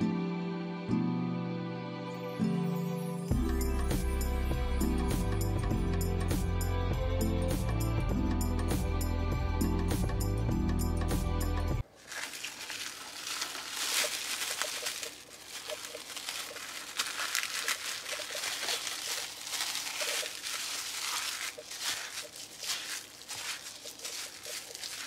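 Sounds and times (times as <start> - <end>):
cling film crinkling: 11.8 - 25.0.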